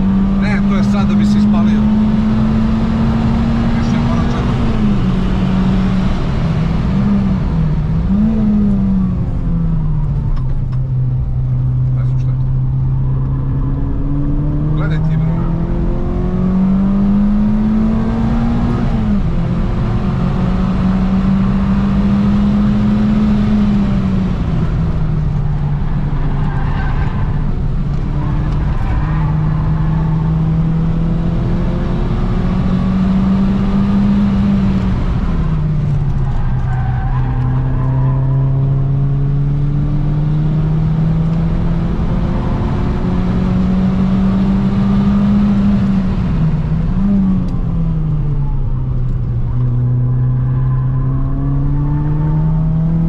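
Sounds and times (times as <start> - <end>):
race car engine accelerating: 0.0 - 53.0.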